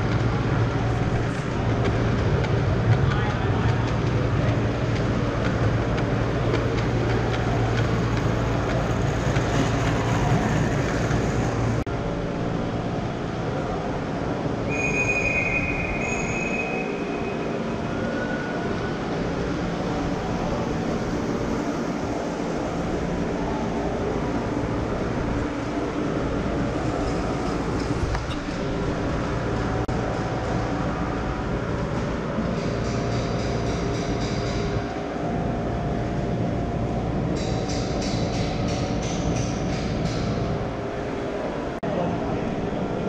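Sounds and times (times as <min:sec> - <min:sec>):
train wheels rumbling on rails: 0:00.0 - 0:41.8
high steady squeal: 0:14.6 - 0:18.8.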